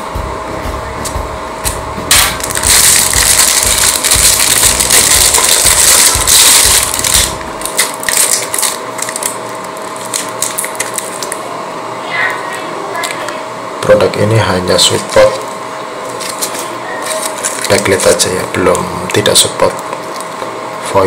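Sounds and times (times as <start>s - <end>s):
plastic packaging crinkling: 2.1s - 11.4s, 16.1s - 18.8s.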